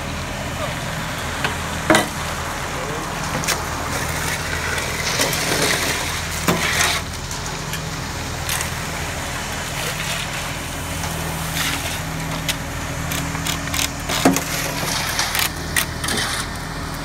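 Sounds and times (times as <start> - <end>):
truck engine running: 0.0 - 17.0
concrete sliding down a chute: 3.0 - 12.6, 14.0 - 16.7.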